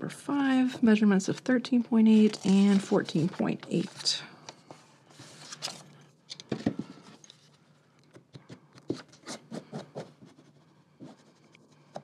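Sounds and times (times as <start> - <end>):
paper rustling: 2.1 - 7.7.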